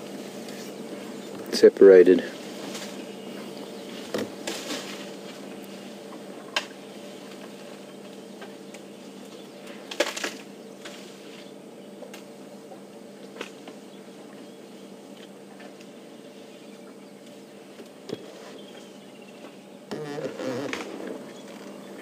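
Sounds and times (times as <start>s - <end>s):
steady low hum: 0.0s - 22.0s
branches snapping and cracking: 4.0s - 5.4s, 8.4s - 11.4s, 12.0s - 12.3s, 13.2s - 13.8s, 20.2s - 22.0s.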